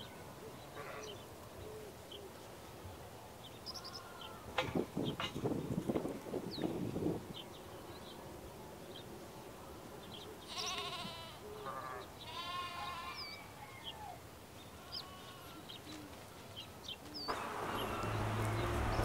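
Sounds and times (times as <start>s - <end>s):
small birds chirping: 3.4s - 8.2s, 10.0s - 19.0s
farm animal bleating: 10.4s - 13.5s, 14.7s - 16.0s.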